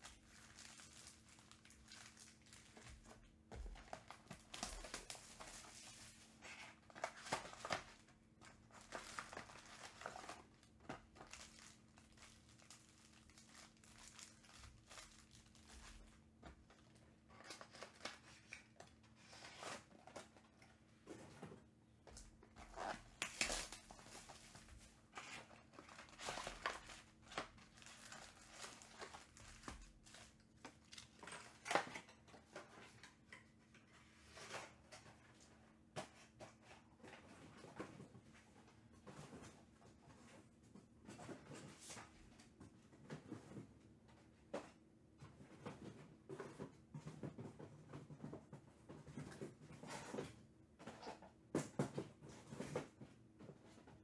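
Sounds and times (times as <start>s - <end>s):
foil packs crinkling and tearing: 0.0s - 3.0s, 3.7s - 16.1s, 22.7s - 31.3s.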